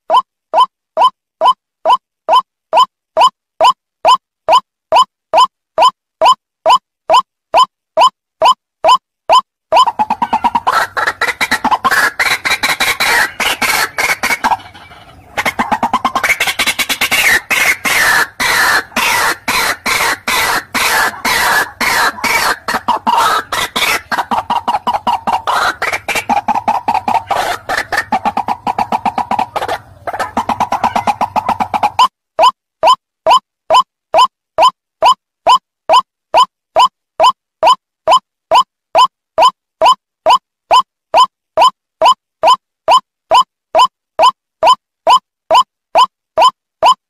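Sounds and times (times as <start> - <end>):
bird harsh chattering call: 9.8 - 32.0.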